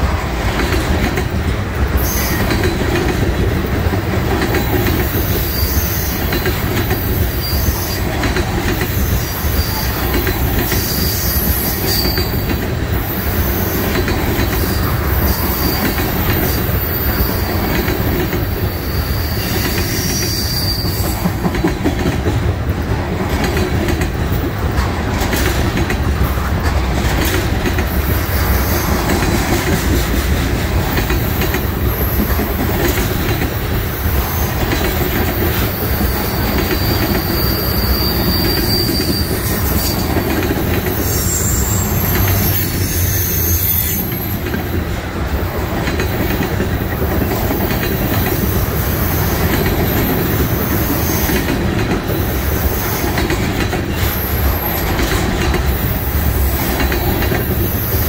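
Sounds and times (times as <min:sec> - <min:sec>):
rail-joint clatter: 0:00.0 - 0:58.0
train wheels rumbling on rails: 0:00.0 - 0:58.0
high wheel squeals: 0:18.5 - 0:21.2, 0:35.6 - 0:40.2, 0:40.9 - 0:44.6.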